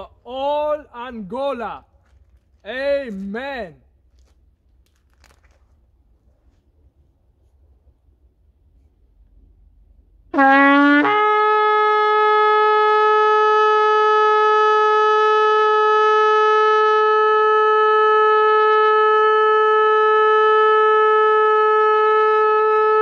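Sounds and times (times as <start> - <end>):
shofar blown in a held note: 10.3 - 23.0.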